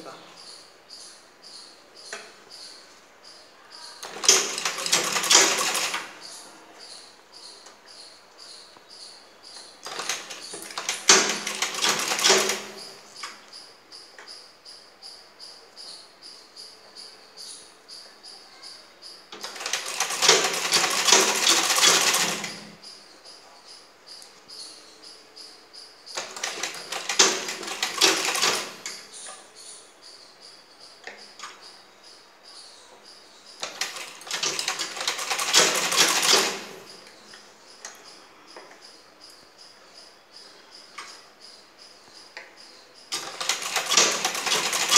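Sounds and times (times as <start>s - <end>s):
cricket chirping: 0.0s - 44.9s
sewing machine stitching: 4.0s - 6.2s, 9.8s - 13.0s, 19.4s - 22.8s, 26.2s - 29.0s, 33.6s - 36.9s, 43.1s - 44.9s.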